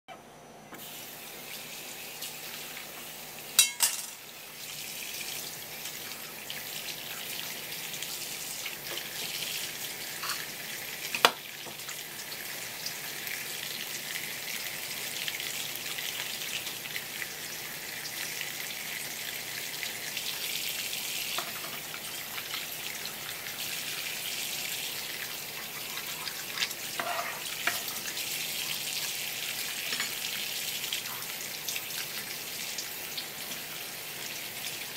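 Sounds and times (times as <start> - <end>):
tap water splashing: 11.1 - 12.0.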